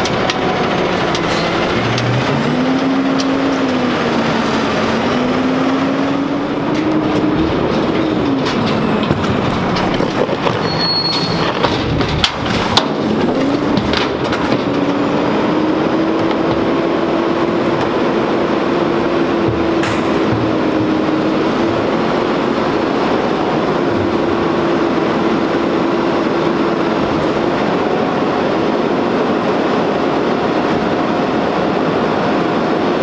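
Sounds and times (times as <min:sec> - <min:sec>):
garbage truck engine drone: 0:00.0 - 0:33.0
bins knocking and clunking: 0:06.6 - 0:15.2, 0:19.0 - 0:22.7.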